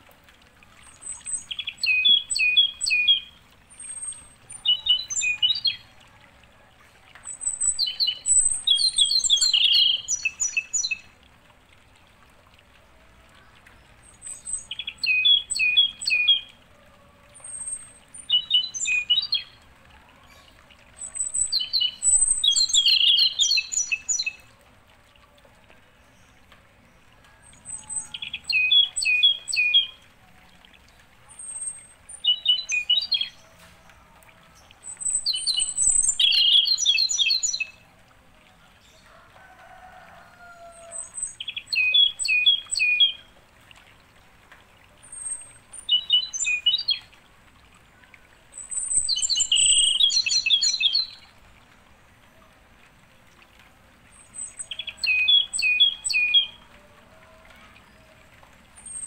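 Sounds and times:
bird chirping: 0:34.9 - 0:37.7, 0:48.6 - 0:51.2.

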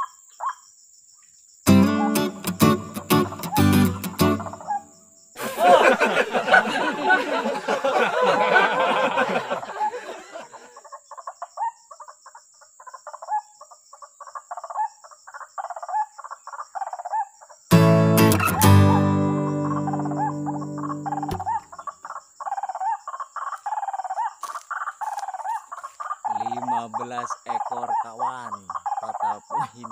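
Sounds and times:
waterhen calls: 0:19.8 - 0:21.9.

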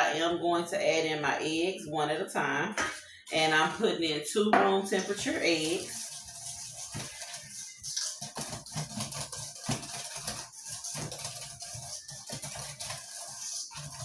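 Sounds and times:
whisk scraping metal bowl: 0:04.9 - 0:14.0.

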